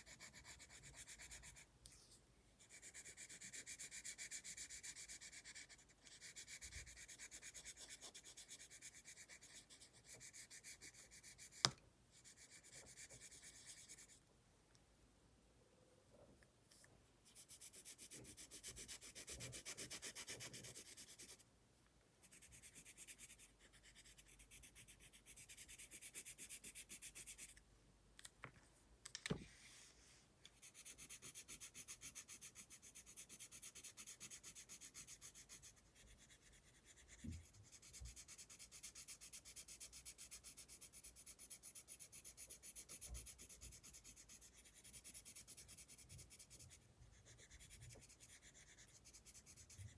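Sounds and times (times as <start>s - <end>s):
pencil scratching on paper: 0.0s - 2.0s, 2.6s - 14.2s, 17.2s - 21.4s, 22.2s - 27.6s, 30.6s - 49.9s.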